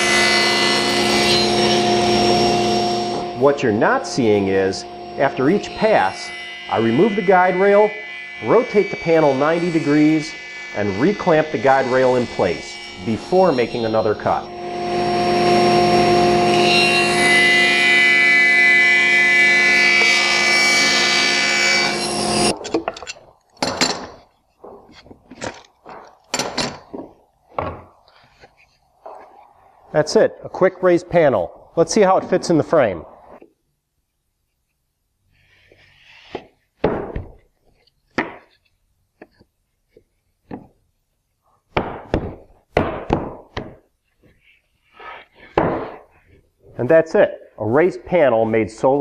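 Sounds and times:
table saw cutting wood: 0.0s - 22.9s, 41.8s - 46.4s.

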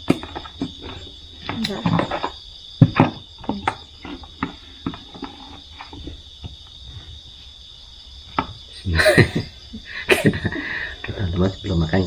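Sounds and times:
crickets chirping: 0.0s - 12.0s
plastic containers knocking on table: 1.8s - 5.0s.

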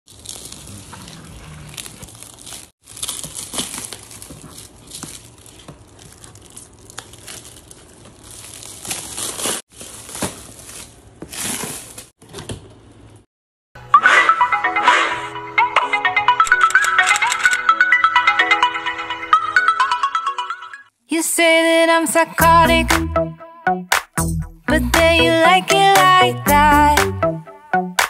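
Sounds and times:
plastic wrap crinkling and tearing: 0.1s - 12.2s.

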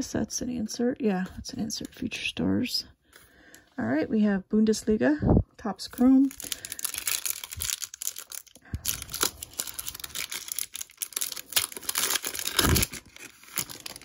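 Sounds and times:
foil wrapper crinkling: 6.0s - 14.0s
foil tearing: 6.3s - 14.0s.

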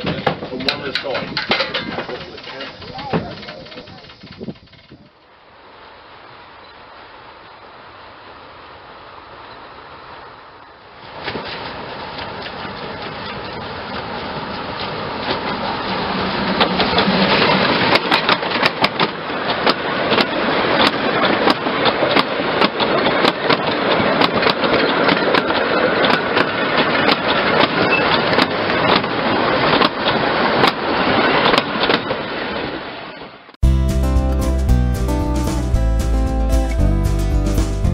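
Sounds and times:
wagon wheels clacking on rail joints: 0.0s - 5.3s, 11.0s - 32.6s
steam locomotive working: 0.0s - 32.6s.

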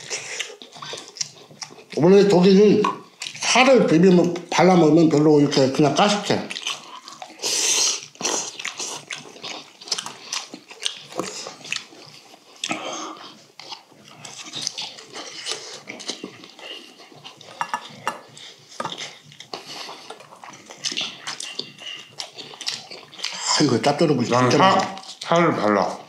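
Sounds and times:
chewing and lip-smacking: 0.0s - 26.0s
utensils clicking on steel bowls: 17.6s - 18.2s.

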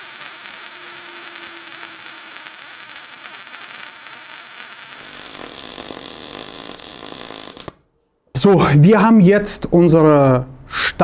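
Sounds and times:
welding arc hissing: 0.0s - 7.8s.

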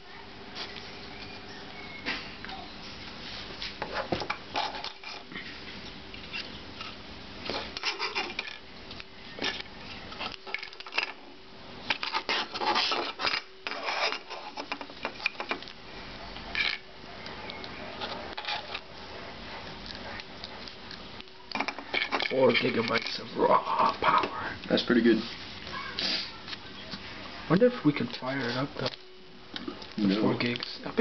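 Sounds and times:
small plastic and metal parts rattling: 10.2s - 11.2s, 21.5s - 23.3s.

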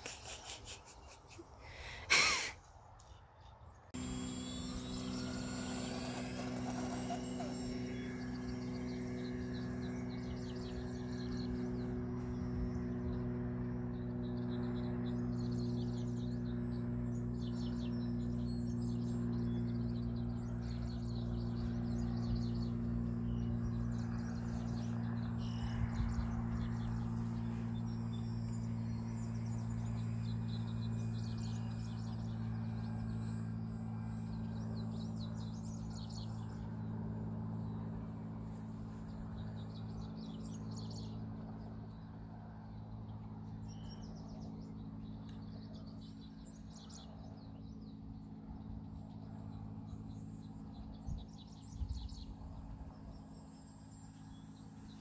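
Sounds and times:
birds chirping: 0.0s - 55.0s
electric motors droning: 4.0s - 39.4s.

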